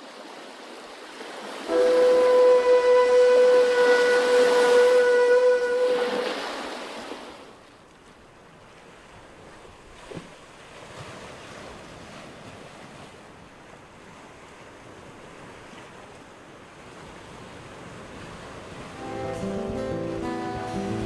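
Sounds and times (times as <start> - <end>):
sea waves washing on shore: 0.0 - 21.0
loud horn blast: 1.6 - 6.5, 19.0 - 21.0.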